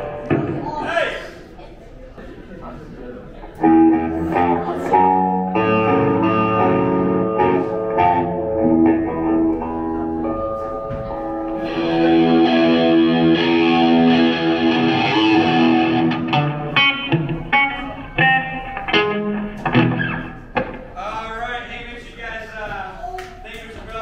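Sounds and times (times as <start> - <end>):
loud electric guitar chords: 0.0 - 0.7, 3.6 - 20.8.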